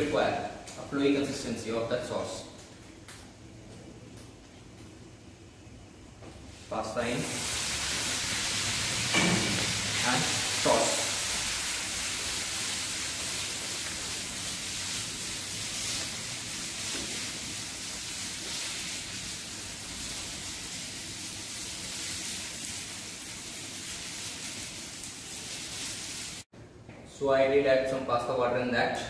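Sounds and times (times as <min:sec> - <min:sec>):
food sizzling in a frying pan: 0:06.6 - 0:26.5.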